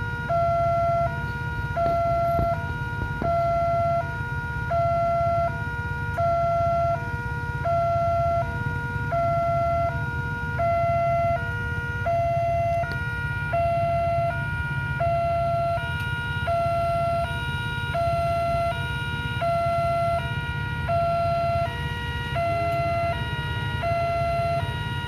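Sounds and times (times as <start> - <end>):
level-crossing two-tone alarm: 0.0 - 25.0.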